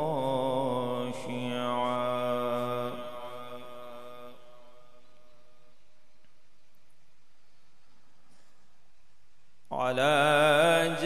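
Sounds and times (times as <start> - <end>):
man reciting over loudspeaker: 0.0 - 5.0, 9.7 - 11.0.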